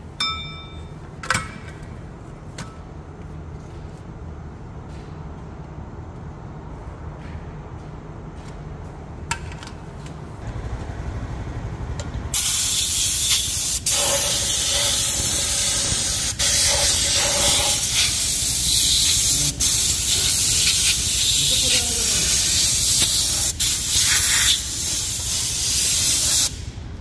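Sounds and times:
loud steady hiss: 0:12.4 - 0:27.0.

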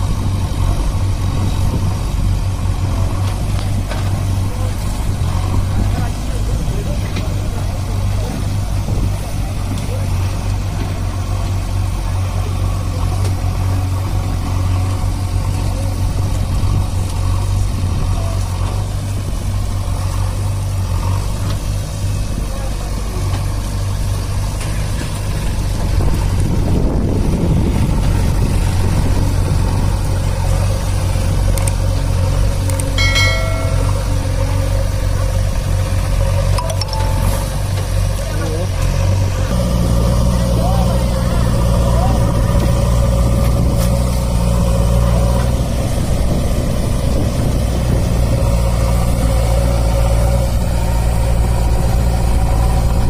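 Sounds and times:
diesel engines droning: 0:00.0 - 0:53.0.

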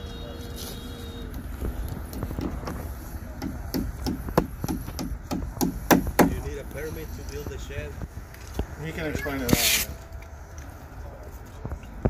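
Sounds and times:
hammer knocking on wood: 0:03.4 - 0:06.5.

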